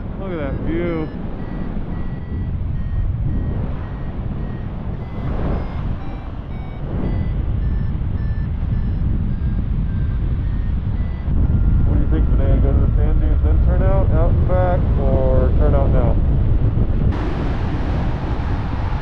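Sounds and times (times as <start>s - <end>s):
variometer beeping: 0.0s - 16.2s
wind noise on microphone: 0.0s - 19.0s.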